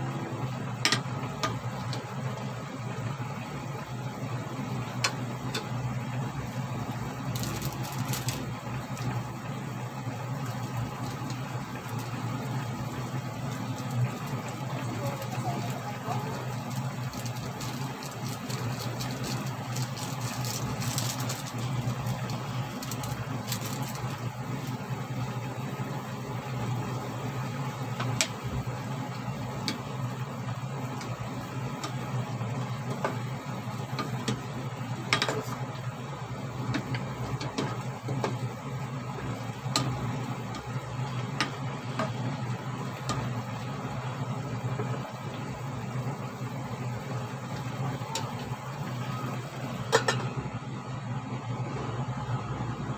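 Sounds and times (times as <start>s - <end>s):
stove hum and hiss: 0.0s - 52.9s.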